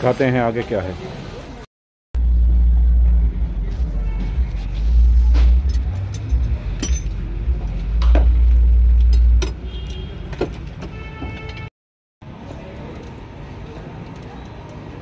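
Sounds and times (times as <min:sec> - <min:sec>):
heavy low rumble: 0:02.2 - 0:09.6.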